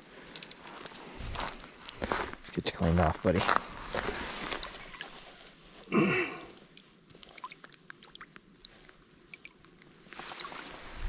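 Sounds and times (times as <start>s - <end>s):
person grunting: 5.9s - 6.5s
water drips and trickles: 6.6s - 11.0s
water splashing: 6.7s - 11.0s.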